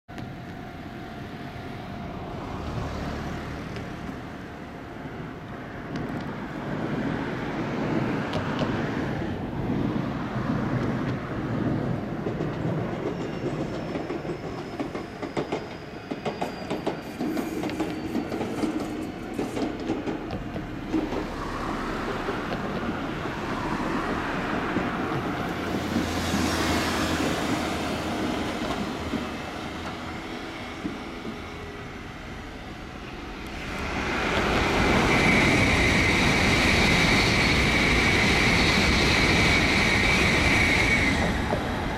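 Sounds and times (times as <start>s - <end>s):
faint falling train whine: 0.1s - 41.9s
high-speed train rushing past: 0.1s - 41.9s
train wheels clattering over rail joints: 10.4s - 31.7s.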